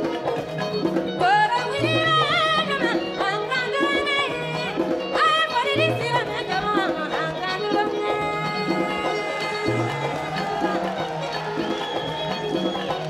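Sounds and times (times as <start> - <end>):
balafons and guitar playing: 0.0 - 13.0
woman singing: 1.1 - 11.4.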